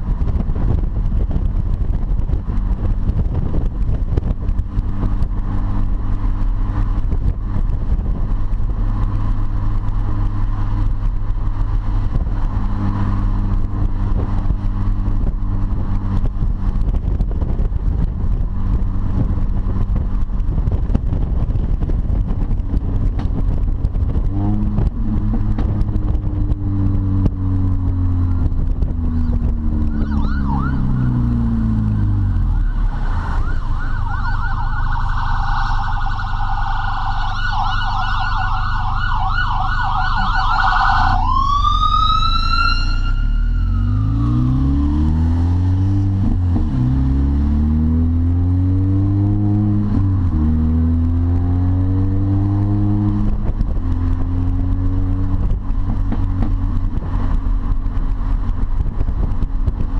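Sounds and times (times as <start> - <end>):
car engine revving: 0.0 - 59.9
emergency vehicle siren: 29.1 - 45.2.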